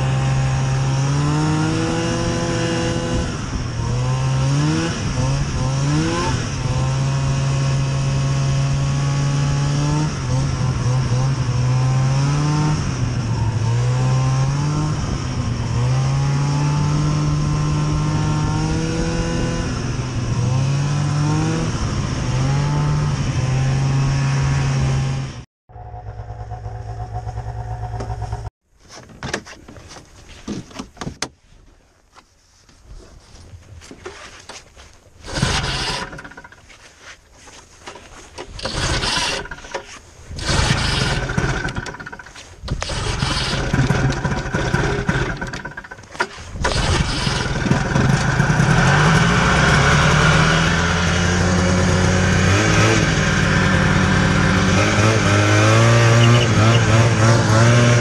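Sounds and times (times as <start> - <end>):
snowmobile engine revving: 0.0 - 28.5, 35.2 - 36.4, 38.6 - 58.0
steady engine hum: 21.8 - 28.5.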